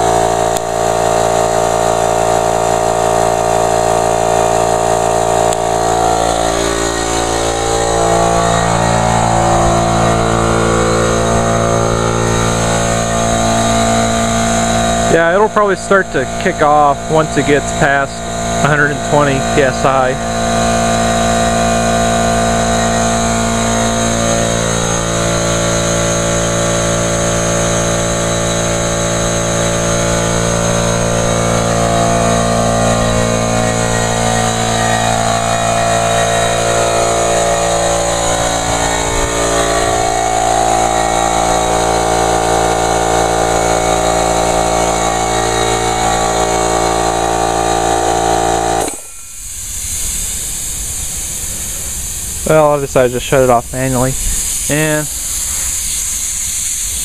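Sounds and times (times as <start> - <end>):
air compressor running: 0.0 - 57.0
hiss of escaping air: 49.0 - 57.0.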